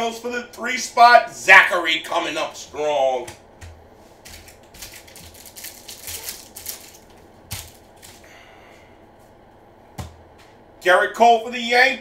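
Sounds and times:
foil wrapper crinkling: 4.2 - 8.3.

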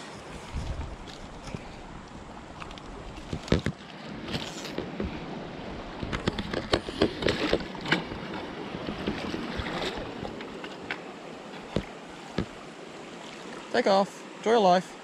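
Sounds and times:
wind on microphone: 0.0 - 10.4
rushing water: 0.0 - 15.0
water splashes and knocks: 0.4 - 13.8.

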